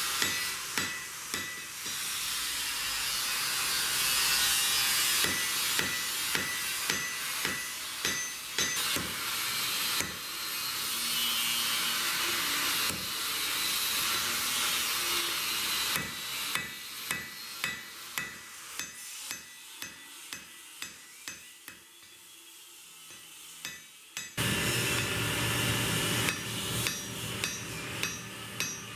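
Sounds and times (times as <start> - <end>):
hammer striking steel on anvil: 0.0 - 2.4, 4.9 - 10.4, 15.6 - 22.2, 23.1 - 28.9.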